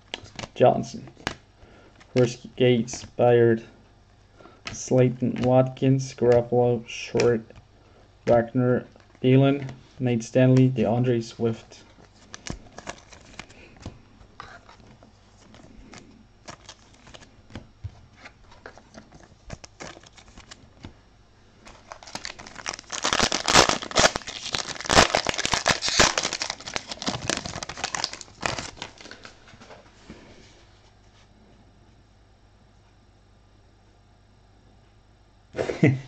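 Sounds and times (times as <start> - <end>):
card pack wrapper tearing: 12.2 - 13.7, 15.4 - 17.3, 18.6 - 20.6, 21.6 - 29.3.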